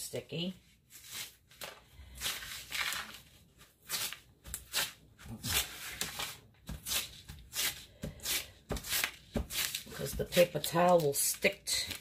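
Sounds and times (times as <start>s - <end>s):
paper towel rustling: 0.6s - 7.8s.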